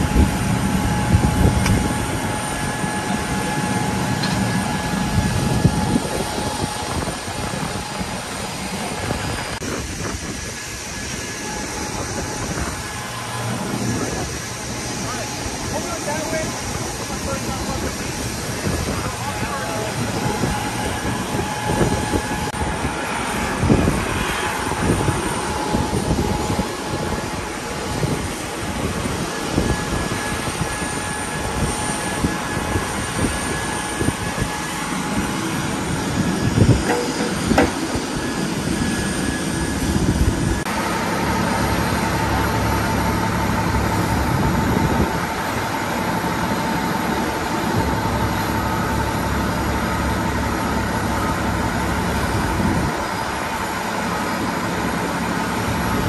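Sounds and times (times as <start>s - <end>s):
steady machine hum: 34.7s - 56.0s
truck engine running: 36.5s - 38.4s
metal ramps clanking on concrete: 36.8s - 37.8s.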